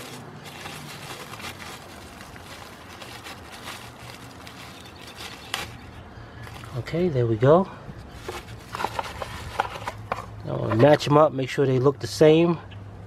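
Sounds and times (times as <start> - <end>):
bubble wrap crinkling: 0.0 - 6.9, 8.1 - 10.1.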